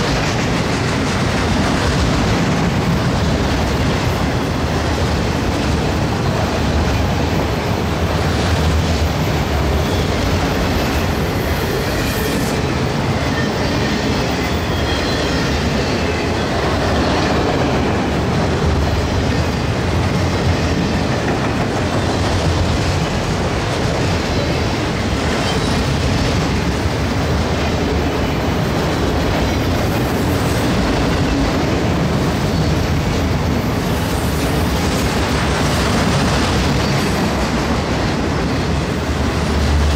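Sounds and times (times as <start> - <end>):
wheels clacking over rail joints: 0.0 - 12.0
train wheels rumbling on rail: 0.0 - 39.9.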